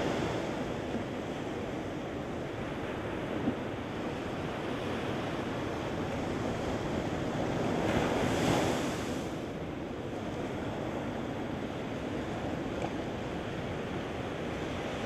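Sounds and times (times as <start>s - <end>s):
waves washing on sand: 0.0s - 15.0s.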